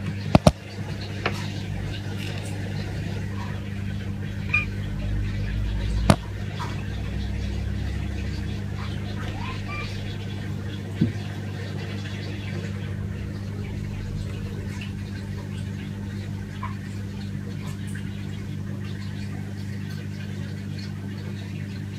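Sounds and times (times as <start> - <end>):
aquarium equipment hum: 0.0 - 21.9.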